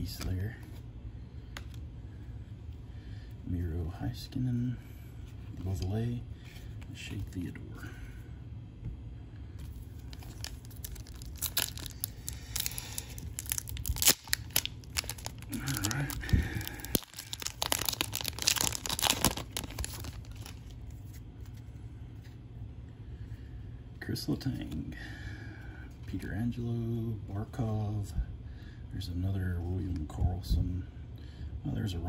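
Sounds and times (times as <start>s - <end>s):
foil wrapper crinkling and tearing: 9.8s - 21.6s.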